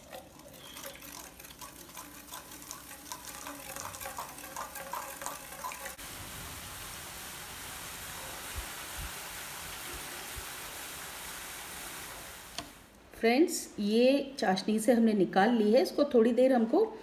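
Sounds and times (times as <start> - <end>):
batter sizzling in hot oil: 5.4 - 12.8.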